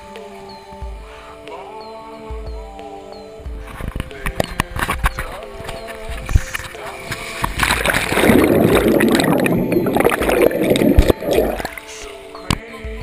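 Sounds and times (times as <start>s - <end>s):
wet sliding on water slide: 6.4s - 11.9s
churning bubbling water underwater: 7.3s - 11.9s
splashdown into pool: 7.4s - 11.8s.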